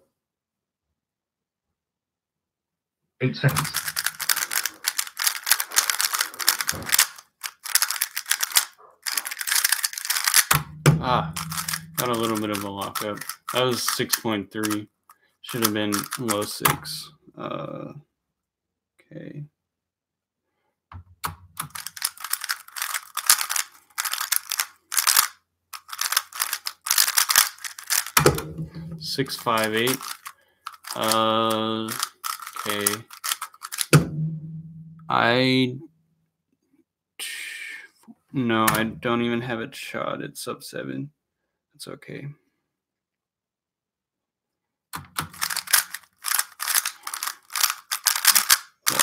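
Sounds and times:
plastic puzzle cube clicking: 0:03.5 - 0:10.6, 0:11.4 - 0:14.8, 0:15.5 - 0:16.8, 0:21.2 - 0:28.4, 0:29.1 - 0:34.0, 0:45.0 - 0:49.0.

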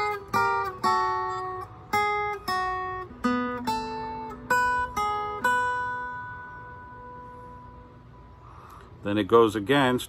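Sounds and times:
acoustic guitar plucked double stops: 0:00.0 - 0:07.9.

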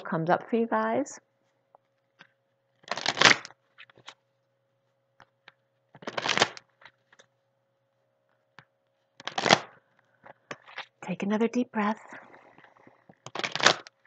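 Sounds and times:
cards being shuffled: 0:02.2 - 0:04.2, 0:05.2 - 0:07.3, 0:09.2 - 0:11.0, 0:13.1 - 0:14.0.

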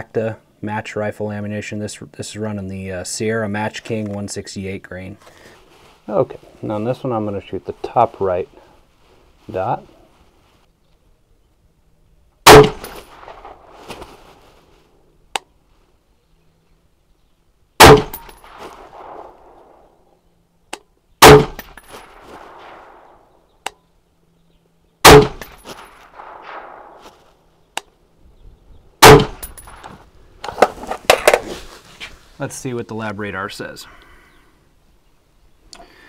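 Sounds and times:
rifle shots with echo: 0:12.4 - 0:13.8, 0:17.8 - 0:19.9, 0:21.2 - 0:23.4, 0:25.0 - 0:27.3, 0:29.0 - 0:29.9.

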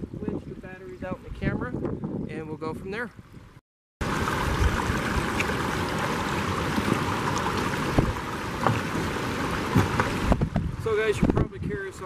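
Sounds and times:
wind buffeting microphone: 0:00.0 - 0:12.0
river running over rocks: 0:04.0 - 0:10.6.

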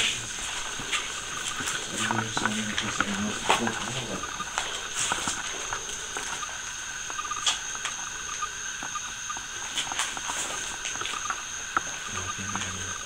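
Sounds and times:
high-pitched insect drone: 0:00.0 - 0:13.0.

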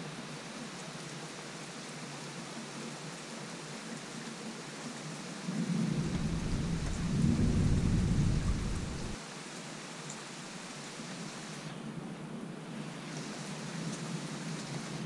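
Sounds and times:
steady rain: 0:00.0 - 0:15.0
thunder rumbling: 0:05.5 - 0:09.2.

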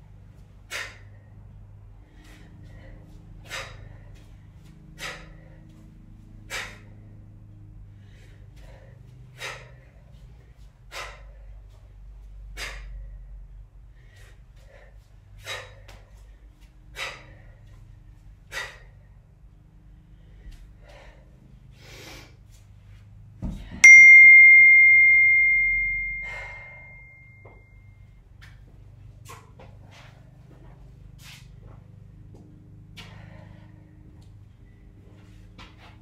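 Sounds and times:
sharp exhales: 0:03.5 - 0:04.0, 0:05.0 - 0:05.6, 0:06.5 - 0:07.0, 0:08.0 - 0:09.8, 0:10.9 - 0:11.5, 0:14.0 - 0:16.0, 0:17.0 - 0:17.6, 0:18.5 - 0:19.0
loud bell-like ding: 0:23.8 - 0:27.7.

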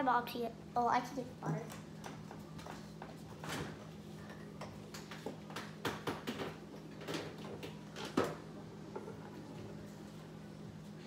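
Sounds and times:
steady low hum: 0:00.0 - 0:11.0
kitchen clicks and knocks: 0:04.6 - 0:09.4.

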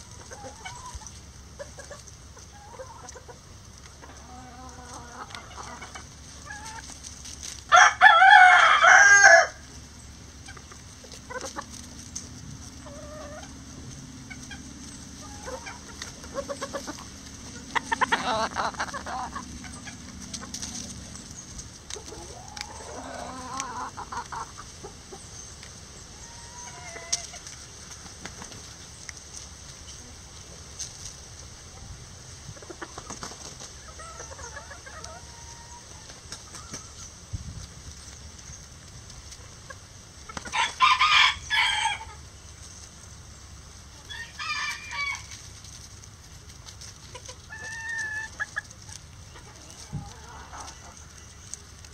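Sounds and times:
hens clucking softly: 0:00.0 - 0:07.0, 0:10.4 - 0:29.2, 0:29.8 - 0:37.2, 0:46.6 - 0:51.9
rooster crowing: 0:07.7 - 0:09.6, 0:40.5 - 0:42.1, 0:44.1 - 0:45.4.

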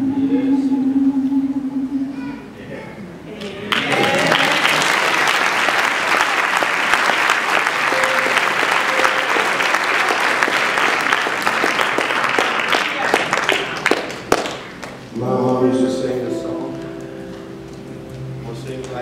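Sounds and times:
audience applauding: 0:03.4 - 0:15.1.

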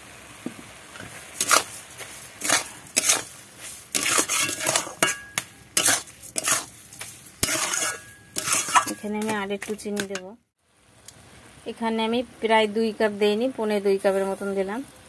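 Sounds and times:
metal spatula scraping metal pan: 0:01.4 - 0:01.8, 0:02.4 - 0:10.2.

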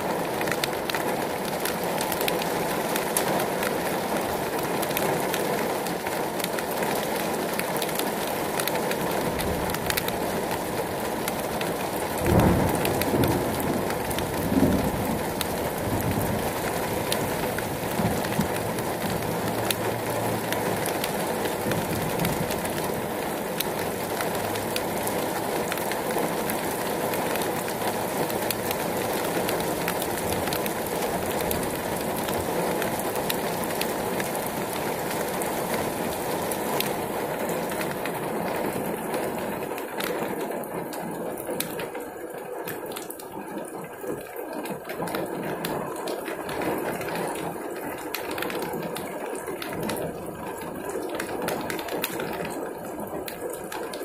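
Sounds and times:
heavy rain on pavement and metal: 0:00.0 - 0:54.0
car passing on wet road: 0:05.8 - 0:39.9.

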